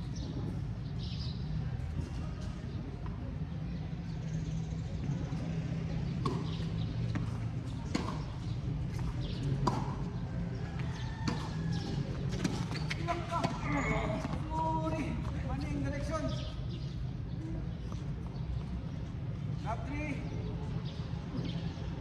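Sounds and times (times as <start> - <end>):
tennis ball hit by racket: 6.1 - 10.2, 10.9 - 13.6.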